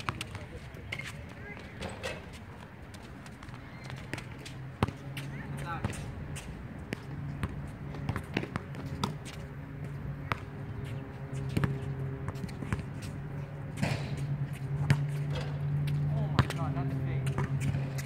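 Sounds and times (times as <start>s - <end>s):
basketball bouncing on hard court: 4.0s - 5.0s, 6.9s - 10.5s, 11.4s - 12.9s, 13.8s - 16.6s, 17.2s - 18.0s.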